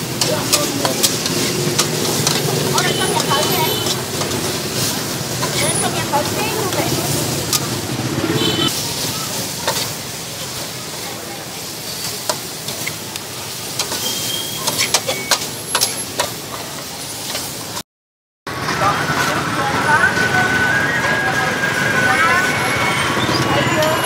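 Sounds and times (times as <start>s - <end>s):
metal spatula scraping wok: 0.0s - 10.8s, 11.7s - 17.7s
food sizzling in wok: 0.0s - 17.8s.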